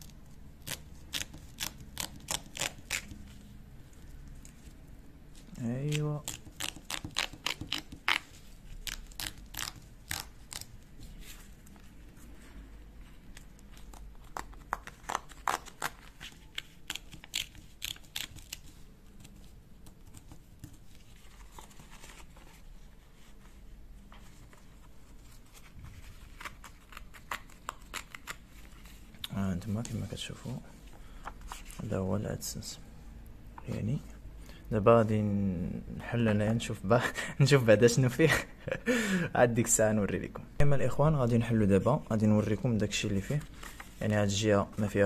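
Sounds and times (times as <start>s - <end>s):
paper perforations tearing: 0.0s - 3.2s, 5.8s - 10.8s.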